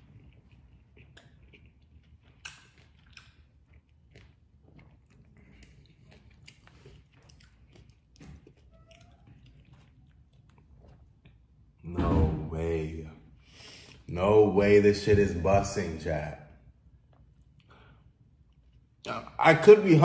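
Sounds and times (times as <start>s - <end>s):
bites and crunches: 0.0s - 11.6s
person chewing: 0.0s - 11.8s, 16.8s - 19.2s.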